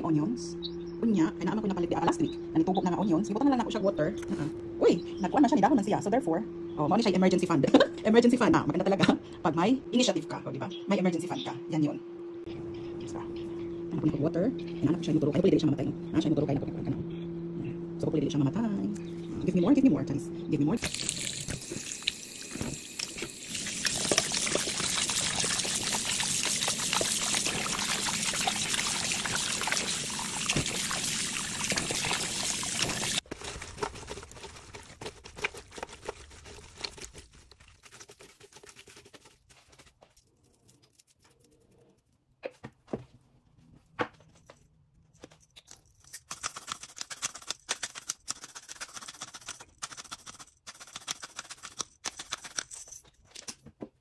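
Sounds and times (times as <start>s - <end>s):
tap water running into steel bowl: 20.8s - 33.2s.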